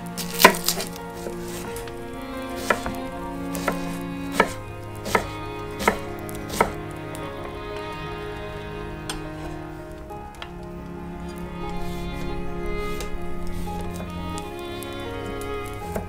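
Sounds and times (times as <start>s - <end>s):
knife chopping on wooden board: 2.6s - 3.0s, 3.6s - 6.8s.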